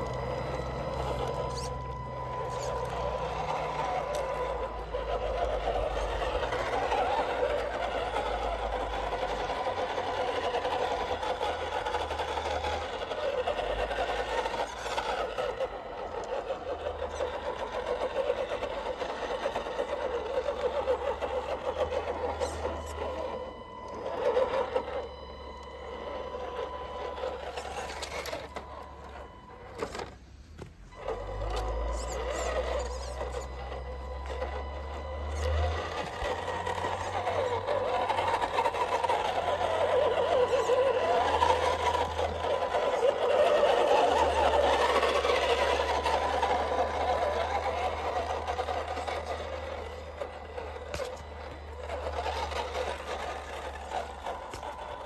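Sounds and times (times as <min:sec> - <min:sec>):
toy truck motor whirring: 0:00.0 - 0:55.0.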